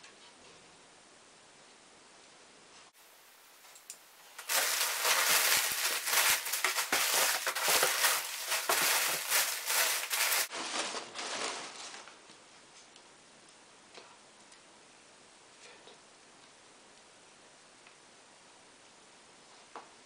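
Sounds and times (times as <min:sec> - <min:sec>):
newspaper crinkling and rustling: 0:04.4 - 0:12.3.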